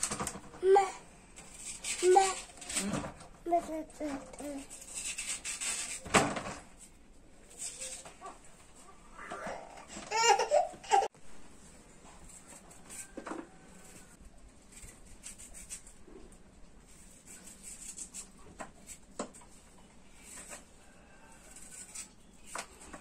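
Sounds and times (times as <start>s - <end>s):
knife scraping while peeling: 1.4s - 2.9s, 4.1s - 6.1s, 6.8s - 8.4s, 12.2s - 16.2s, 16.8s - 23.0s
baby laughing and squealing: 9.4s - 11.1s.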